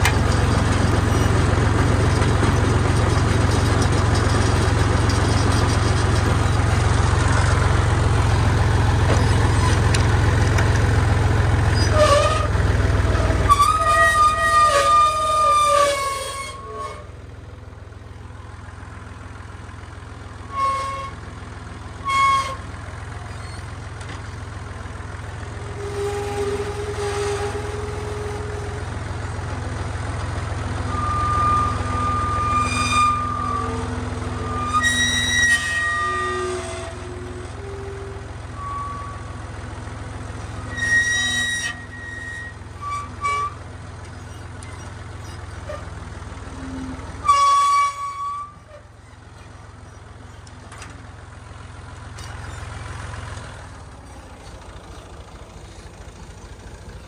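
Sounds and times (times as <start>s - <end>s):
tractor diesel engine running: 0.0s - 57.0s
short high-pitched squealing: 7.2s - 10.0s, 11.6s - 17.2s, 20.4s - 21.3s, 22.0s - 23.7s, 30.9s - 39.5s, 40.3s - 46.0s, 46.6s - 50.5s, 52.2s - 53.0s.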